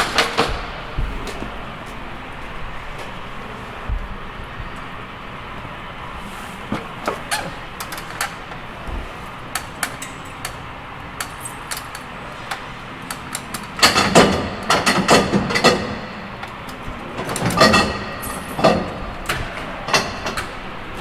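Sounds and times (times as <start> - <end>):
metal lock clicking and clanking: 11.2 - 20.7.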